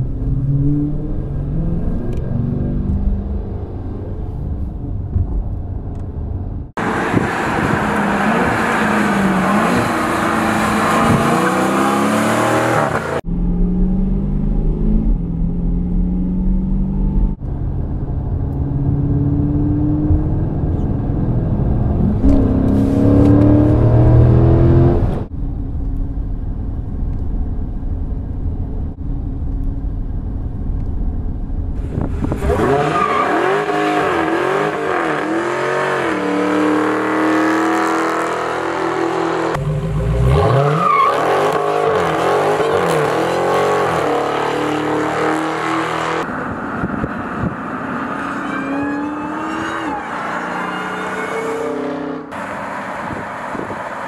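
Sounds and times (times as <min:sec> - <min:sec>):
car engine accelerating: 0:00.0 - 0:54.0
car engine revving: 0:06.8 - 0:25.3, 0:31.9 - 0:54.0.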